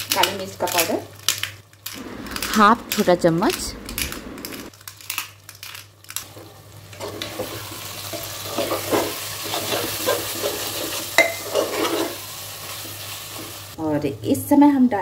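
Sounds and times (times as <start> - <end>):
oil sizzling: 0.0 - 4.8, 5.8 - 13.8
metal spatula scraping pot: 8.4 - 12.2.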